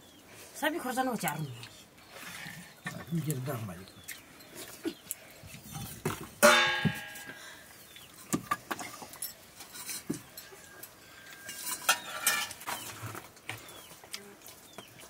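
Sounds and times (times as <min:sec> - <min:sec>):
clinks of steel plates: 0:06.4 - 0:07.4, 0:08.2 - 0:12.6.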